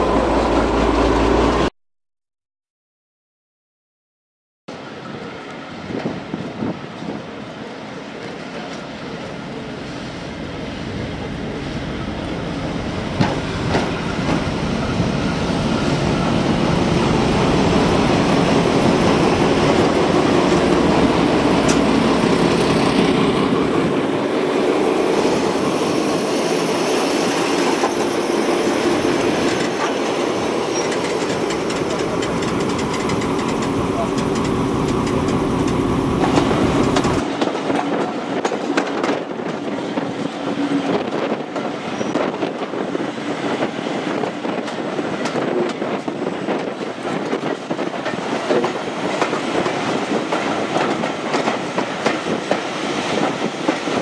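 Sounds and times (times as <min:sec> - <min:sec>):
diesel locomotive engines running: 0:07.4 - 0:38.2
wheels clacking on rails: 0:10.9 - 0:42.8, 0:43.4 - 0:54.0.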